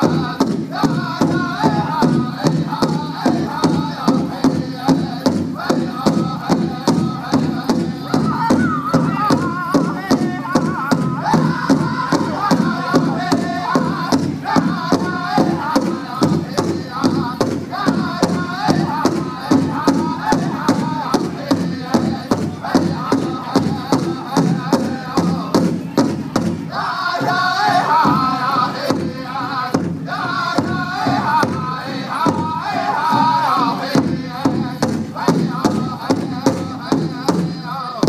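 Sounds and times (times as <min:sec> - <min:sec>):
big drum beat: 0:00.0 - 0:38.0
drum group singing: 0:00.0 - 0:38.0.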